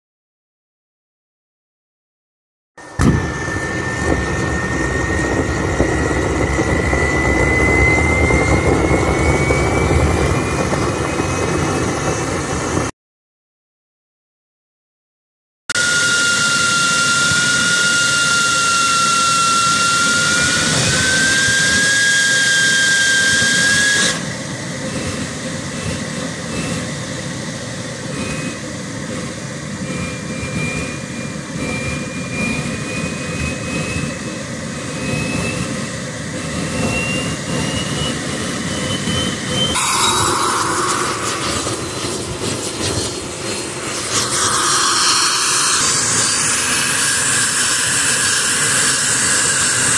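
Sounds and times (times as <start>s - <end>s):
turbojet whine: 2.8s - 12.9s, 15.7s - 49.9s
loud rushing noise: 30.7s - 46.8s
air hose hissing: 39.8s - 46.4s.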